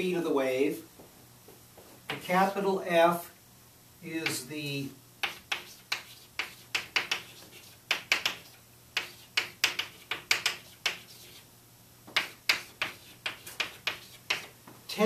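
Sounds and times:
chalk writing on blackboard: 5.2s - 11.5s, 12.1s - 14.5s.

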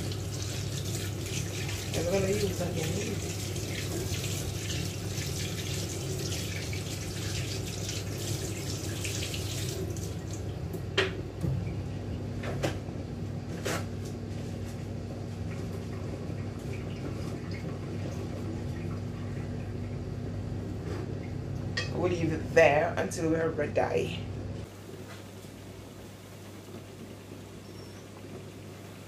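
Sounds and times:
steady low hum: 9.6s - 29.0s.

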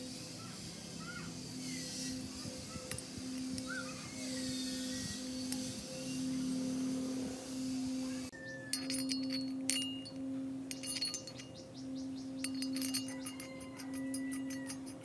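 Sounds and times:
steady low tone: 0.0s - 15.0s
small steel parts clinking: 1.4s - 5.9s, 8.7s - 11.6s, 12.4s - 15.0s.

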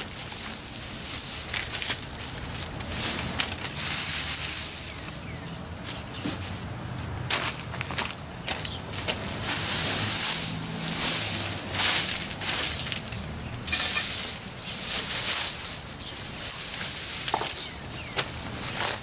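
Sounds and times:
rake scratching through dry leaves: 0.0s - 6.7s, 8.6s - 19.0s.

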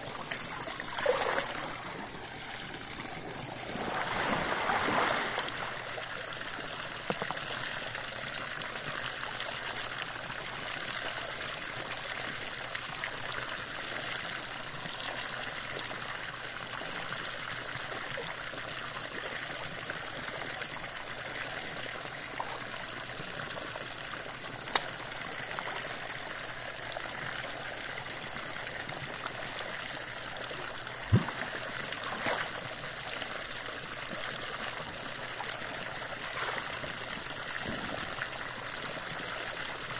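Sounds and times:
water jet splashing into pool: 0.0s - 7.2s, 28.8s - 39.9s.

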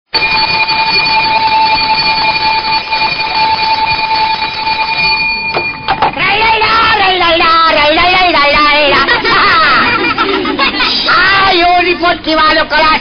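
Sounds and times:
high beep tone: 0.1s - 6.9s.

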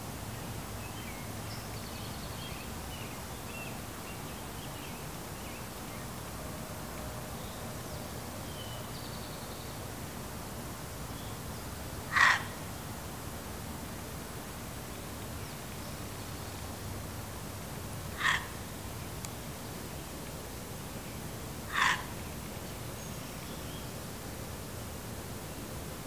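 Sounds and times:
background hiss: 0.0s - 26.0s
fox barking: 12.1s - 12.5s, 18.2s - 18.5s, 21.7s - 22.1s.

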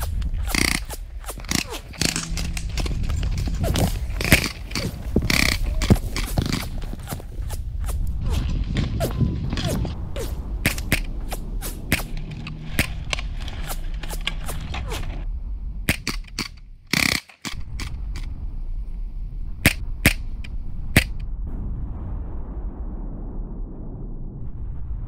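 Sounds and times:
gunshots: 0.0s - 15.1s.

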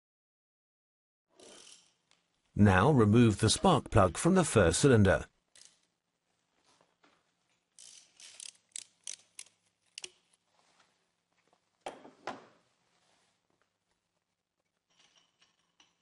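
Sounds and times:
socket wrench ratcheting: 7.8s - 10.2s.

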